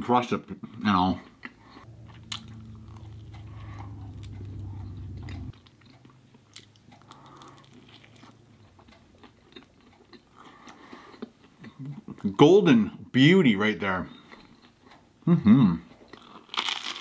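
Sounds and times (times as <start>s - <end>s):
person chewing crunchy pizza: 0.7s - 12.3s, 14.1s - 15.2s, 15.9s - 17.0s
low steady hum: 1.6s - 12.1s.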